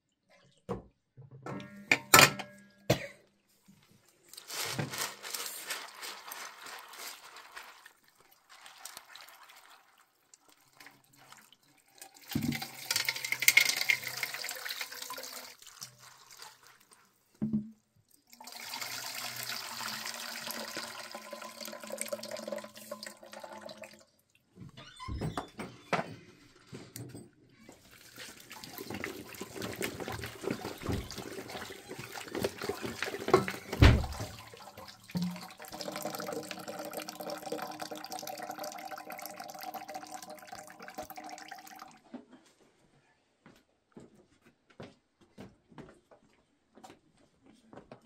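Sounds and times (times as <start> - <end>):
water sloshing in metal bowls: 4.2 - 17.3, 27.8 - 42.0.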